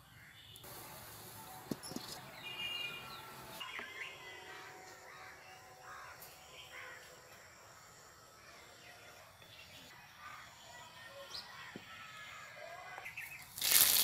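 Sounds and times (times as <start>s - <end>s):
birds chirping: 0.0s - 11.9s
faint outdoor background: 0.0s - 14.0s
crows calling: 4.0s - 7.4s.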